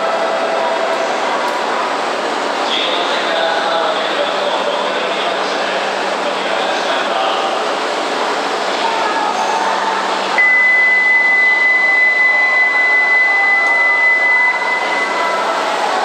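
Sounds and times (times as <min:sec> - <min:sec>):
station hum: 0:00.0 - 0:16.0
high-pitched warning beep: 0:10.4 - 0:15.5.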